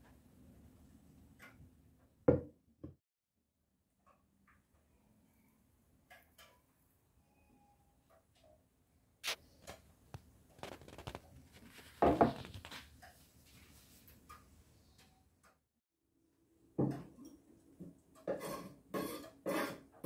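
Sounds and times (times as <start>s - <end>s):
hands knocking and rustling: 10.6s - 12.8s.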